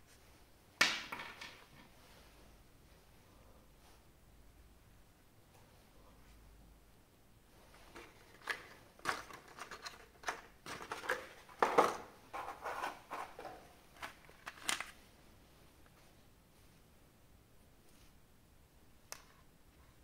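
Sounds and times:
packaging rustling: 7.9s - 15.0s.

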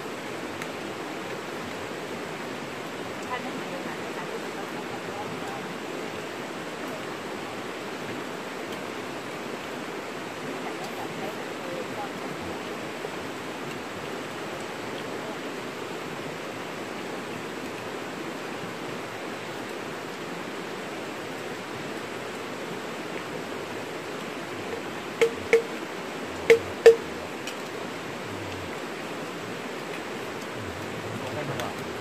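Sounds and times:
flowing river water: 0.0s - 32.0s.

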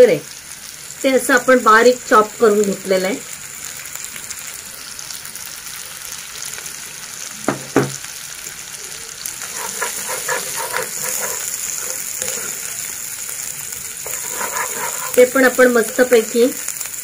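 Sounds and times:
vegetables sizzling in hot oil: 0.0s - 17.0s
spatula scraping through vegetables: 9.4s - 16.4s.

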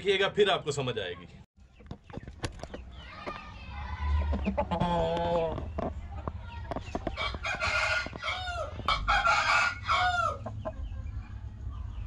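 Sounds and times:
rooster crowing: 7.2s - 10.5s.

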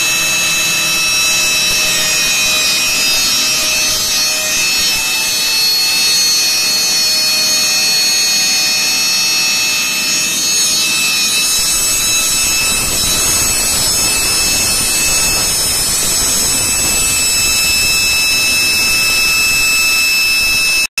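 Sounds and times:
air compressor running: 0.0s - 20.8s
high-pitched whining tones: 0.0s - 21.0s
deep rumble: 11.3s - 20.1s.

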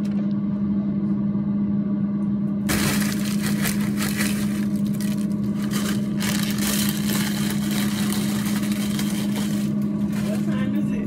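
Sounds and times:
steady low hum: 0.0s - 11.0s
chips rattling into basket: 2.7s - 10.6s
foil snack bag crinkling: 2.7s - 10.6s.

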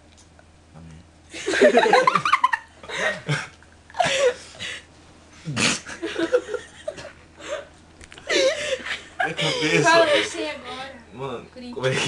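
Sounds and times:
young man laughing: 1.3s - 4.8s, 5.4s - 10.4s.

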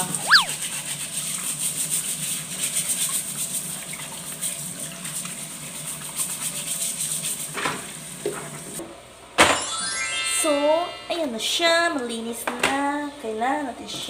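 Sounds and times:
brief squeak: 0.0s - 0.6s.

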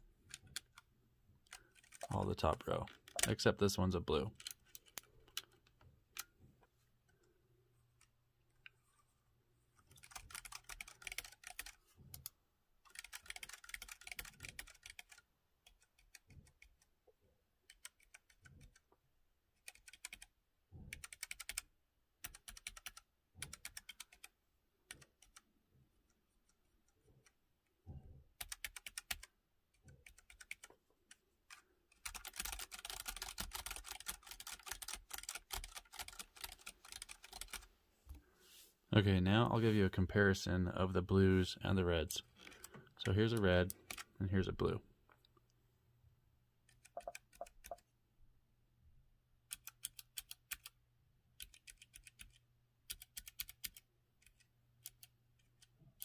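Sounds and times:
mechanical keyboard typing: 3.0s - 3.4s, 9.9s - 12.3s, 12.9s - 16.9s, 17.7s - 18.8s, 19.6s - 20.3s, 20.9s - 24.3s, 28.4s - 30.7s, 31.9s - 37.7s, 46.7s - 47.8s, 49.5s - 50.8s, 51.4s - 56.0s.

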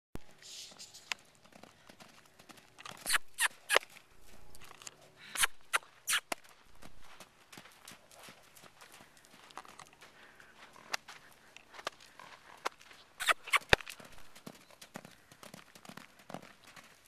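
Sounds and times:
horse moving over sand: 6.1s - 17.0s.

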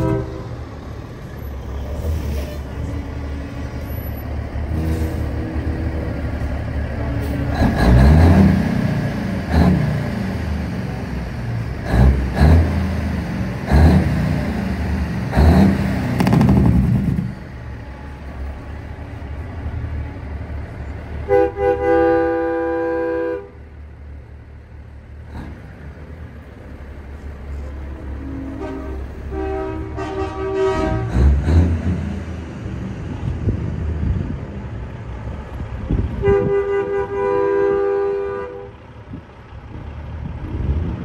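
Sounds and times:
truck diesel engines revving: 0.0s - 41.0s.

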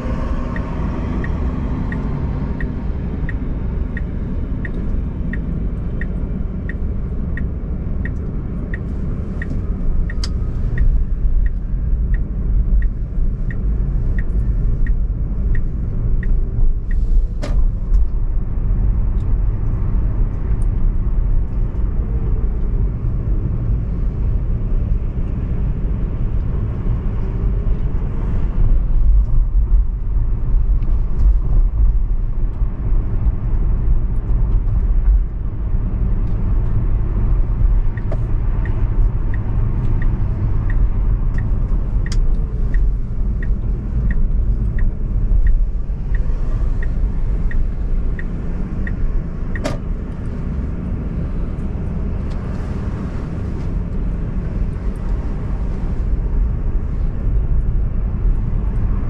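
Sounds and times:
turn signal ticking: 0.0s - 53.0s
car road and engine rumble: 0.0s - 59.0s.

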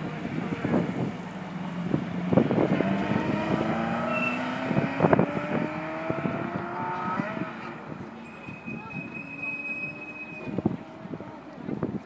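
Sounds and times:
car engine accelerating: 0.0s - 8.2s
wind buffeting microphone: 0.0s - 12.0s.

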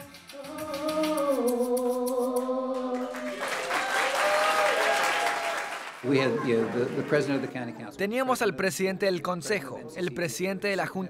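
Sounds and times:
audience applause: 3.0s - 7.7s.

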